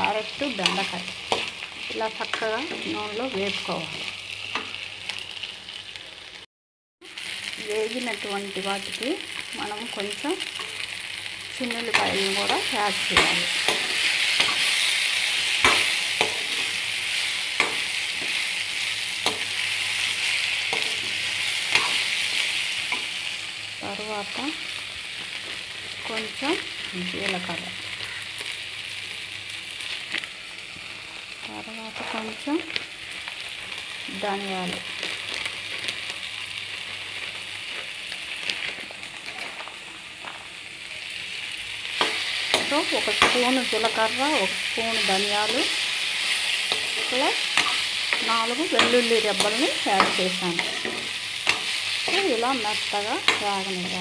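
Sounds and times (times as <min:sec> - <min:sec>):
vegetables sizzling in hot oil: 0:00.0 - 0:54.0
spoon scraping and knocking pan: 0:17.6 - 0:18.5, 0:46.7 - 0:52.3.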